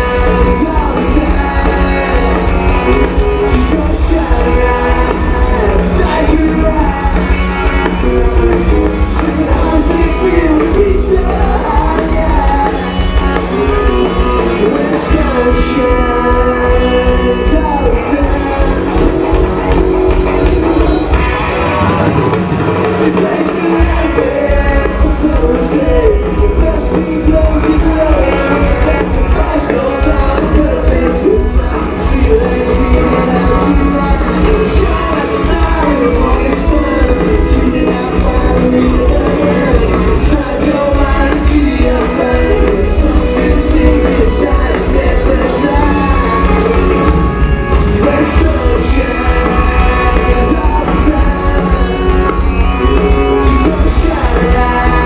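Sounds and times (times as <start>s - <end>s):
drums: 0.0s - 55.0s
electric guitars: 0.0s - 55.0s
person singing lead vocal: 0.0s - 55.0s.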